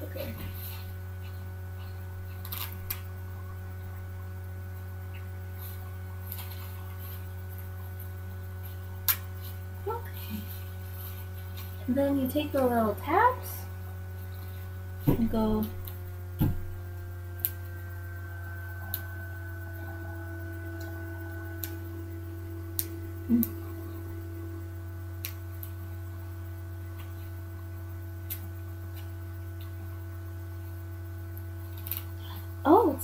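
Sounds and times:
low electrical hum: 0.0s - 33.0s
faint steady tones: 9.6s - 33.0s.

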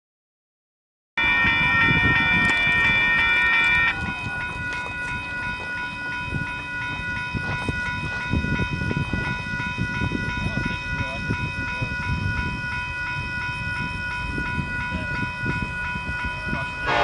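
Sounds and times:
crossing bell ringing: 1.2s - 17.0s
train horn chord: 16.8s - 17.0s.

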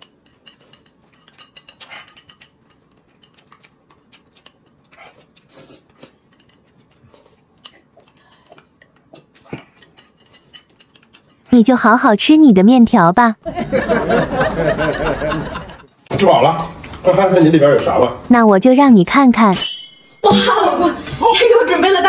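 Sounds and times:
chopsticks on a plate: 0.0s - 11.5s.

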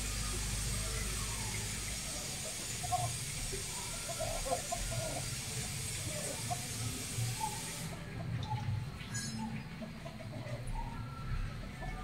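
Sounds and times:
steady hiss: 0.0s - 8.0s.

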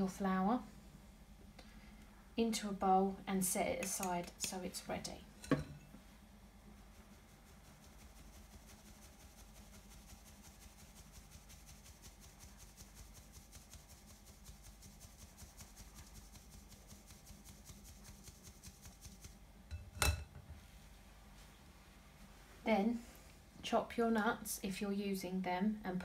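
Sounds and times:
sieve clinking on glass bowl: 5.4s - 5.8s.

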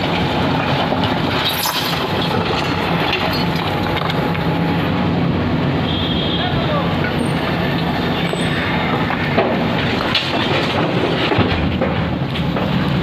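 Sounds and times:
bricks rattling and scraping: 0.0s - 4.5s, 8.5s - 13.0s
bucket digging brick rubble: 0.1s - 4.2s.

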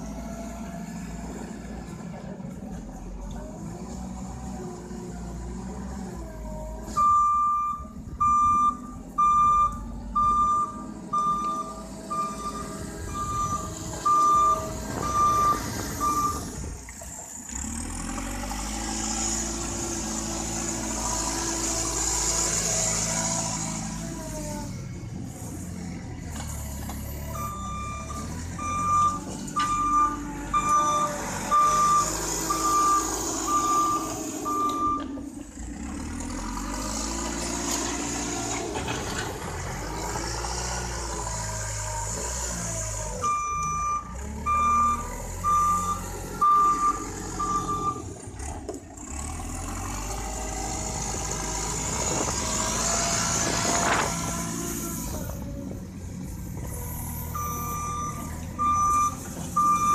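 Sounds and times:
diesel engine running: 0.0s - 59.9s
reversing alarm beeping: 7.0s - 16.5s, 27.3s - 35.1s, 43.2s - 48.1s, 57.3s - 59.9s
engine revving with hiss: 48.4s - 55.3s.

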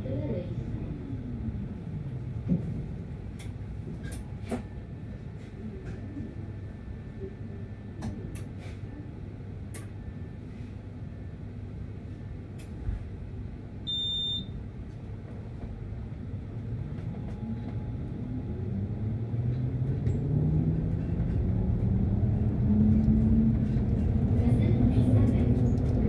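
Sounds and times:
short electronic beep: 13.9s - 14.5s
low rumble: 17.5s - 26.0s.

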